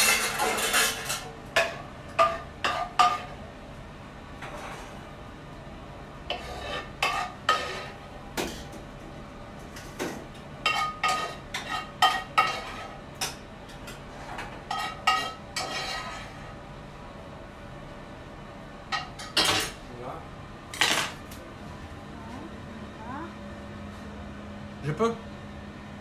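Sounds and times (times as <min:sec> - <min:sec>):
utensils clinking on pan and plates: 0:00.0 - 0:03.4, 0:06.3 - 0:08.8, 0:09.7 - 0:16.4, 0:18.9 - 0:19.8.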